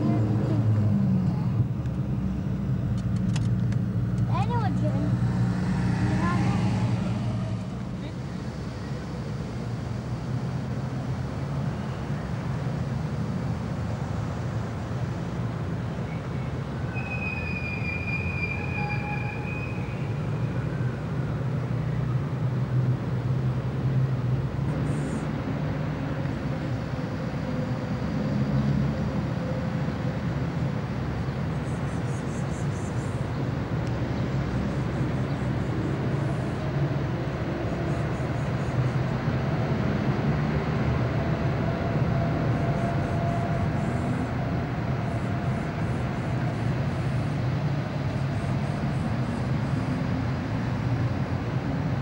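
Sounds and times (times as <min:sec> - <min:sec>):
city street traffic rumble: 0:00.0 - 0:52.0
high squeal: 0:16.8 - 0:20.5.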